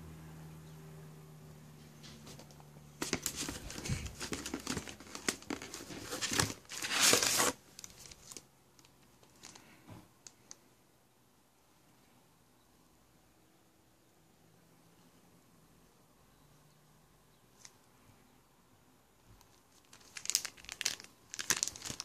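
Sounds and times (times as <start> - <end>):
paper and cardboard rustling: 2.0 - 8.4, 19.7 - 22.0.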